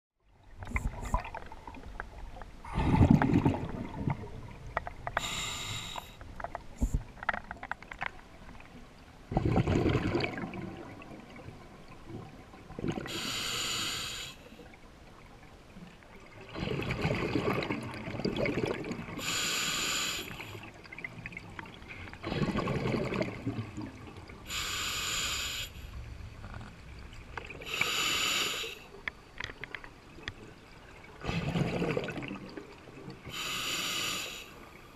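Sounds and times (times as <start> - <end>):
bubbling exhale underwater: 2.6 - 4.6, 9.3 - 13.4, 16.5 - 19.4, 22.2 - 25.3, 31.2 - 32.6
hissing regulator inhale: 5.2 - 6.2, 13.1 - 14.5, 19.2 - 20.7, 24.5 - 26.0, 27.6 - 28.9, 33.3 - 34.7.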